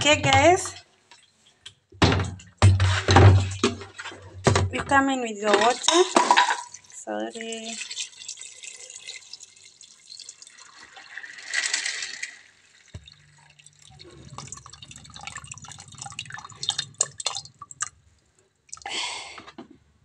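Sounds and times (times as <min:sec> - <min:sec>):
water pouring and splashing: 0:02.8 - 0:04.7, 0:05.4 - 0:18.9
water dripping: 0:05.4 - 0:19.0
low steady hum: 0:13.0 - 0:18.8.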